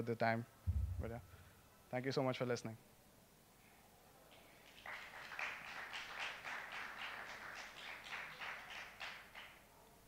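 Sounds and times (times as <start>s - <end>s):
light applause: 4.3s - 9.7s.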